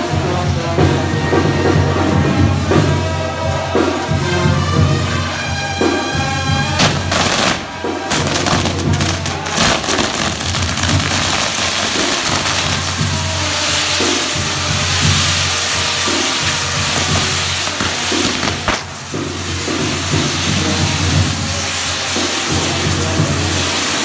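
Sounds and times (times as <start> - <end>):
fireworks crackling bangs: 2.4 - 24.0
fireworks hissing rush of sparks: 5.0 - 24.0.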